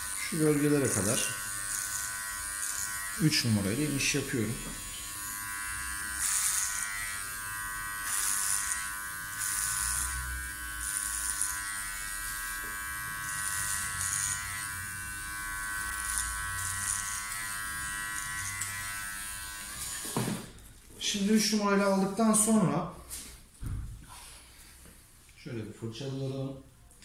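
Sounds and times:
hair clipper running: 0:00.0 - 0:20.6
clipper blades cutting hair: 0:00.0 - 0:20.8.

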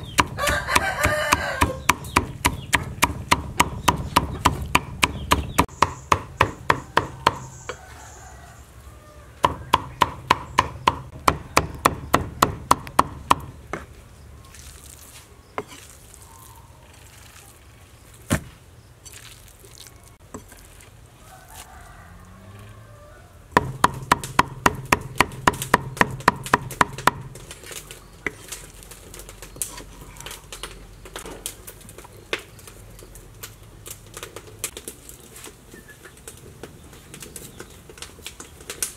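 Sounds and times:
cleaver chopping on wooden block: 0:00.0 - 0:07.5, 0:09.4 - 0:13.8, 0:23.6 - 0:27.4.

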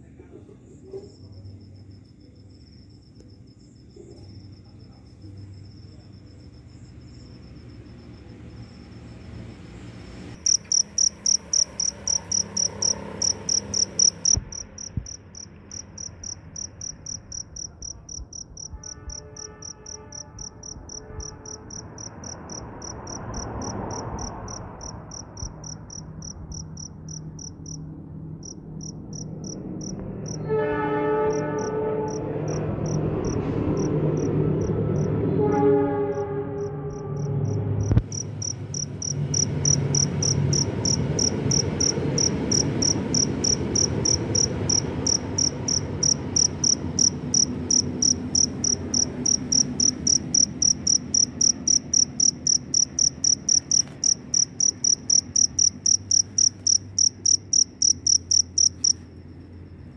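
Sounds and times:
cricket chirping: 0:00.5 - 0:35.3, 0:36.1 - 0:59.9
horn blasts: 0:18.6 - 0:22.8, 0:30.2 - 0:52.2.

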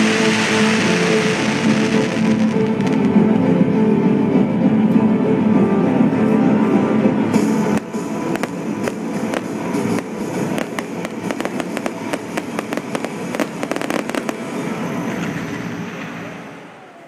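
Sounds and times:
fireworks bangs: 0:00.0 - 0:03.3, 0:07.4 - 0:16.6
fireworks crackling: 0:00.0 - 0:03.4, 0:07.4 - 0:16.4.

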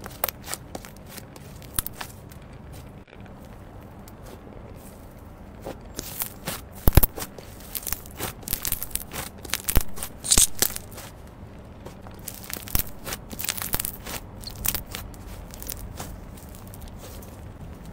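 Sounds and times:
slime crackling and clicking: 0:06.0 - 0:11.0, 0:12.1 - 0:16.8
slime tearing: 0:06.0 - 0:11.1, 0:12.1 - 0:17.2.

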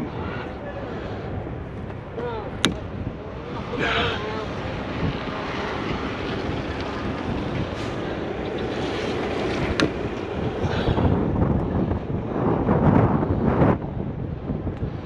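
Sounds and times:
wind on microphone: 0:00.0 - 0:15.0
heavy diesel engine running: 0:03.0 - 0:12.2.

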